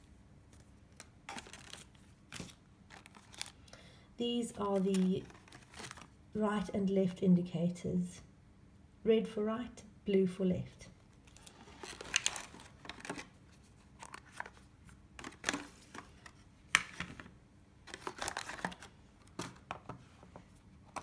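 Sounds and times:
plastic and cardboard rustling: 0:00.5 - 0:03.6, 0:04.4 - 0:06.2, 0:11.2 - 0:21.0.

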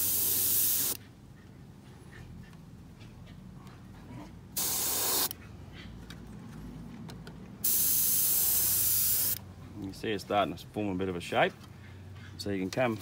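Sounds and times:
airbrush spraying hiss: 0:00.0 - 0:01.0, 0:04.6 - 0:05.3, 0:07.6 - 0:09.4.

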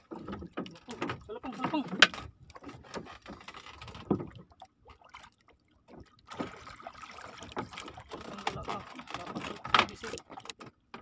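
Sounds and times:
water splashing: 0:00.0 - 0:10.7
knocks against boat: 0:07.5 - 0:11.0.

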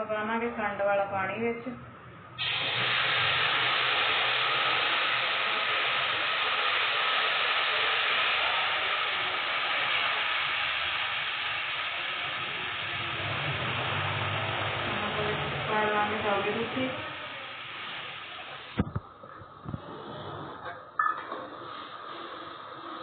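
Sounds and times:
syrup sizzling in hot pan: 0:02.4 - 0:18.8.

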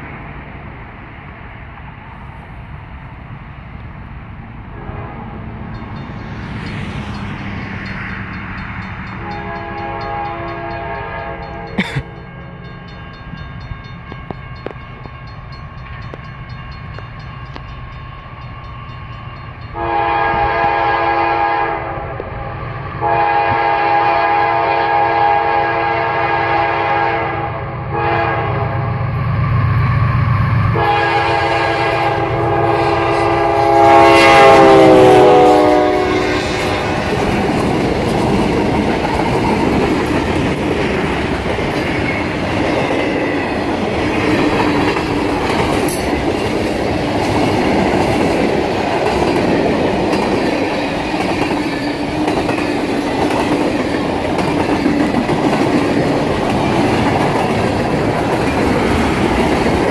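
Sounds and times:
locomotive air horn blasts: 0:04.8 - 0:05.6, 0:09.2 - 0:12.6, 0:19.8 - 0:22.4, 0:23.0 - 0:28.9, 0:30.7 - 0:37.2.

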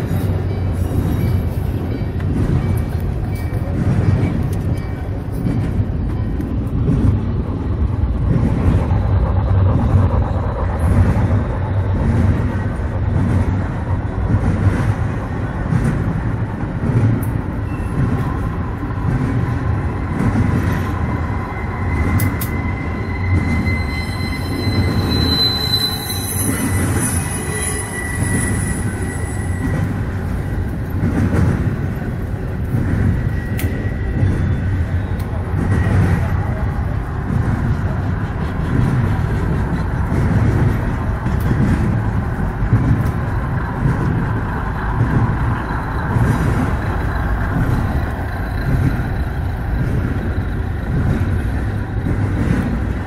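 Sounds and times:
thin high squeal: 0:21.3 - 0:30.0.

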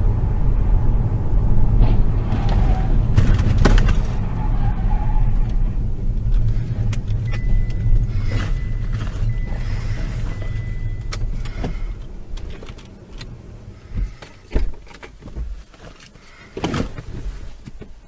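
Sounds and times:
road and engine rumble: 0:00.0 - 0:18.0
car crash knocks: 0:01.8 - 0:04.2
thin high beep: 0:07.2 - 0:11.2.

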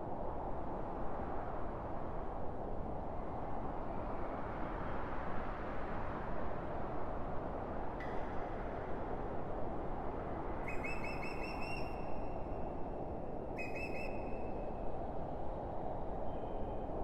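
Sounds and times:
bird whistled calls: 0:10.7 - 0:11.9, 0:13.6 - 0:14.2.

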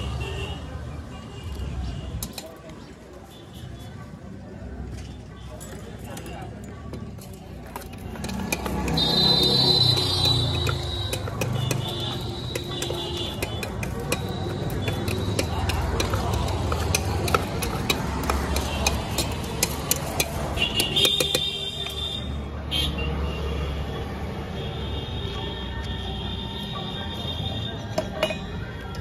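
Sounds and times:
street traffic rumble: 0:00.0 - 0:29.0
metal spoon clinking on pot: 0:05.5 - 0:21.9, 0:28.0 - 0:28.7.

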